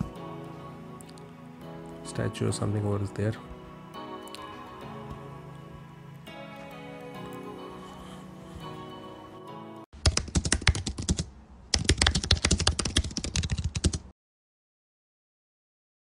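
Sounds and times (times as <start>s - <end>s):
soft background music: 0.0s - 9.9s
keyboard typing clicks: 10.0s - 14.0s.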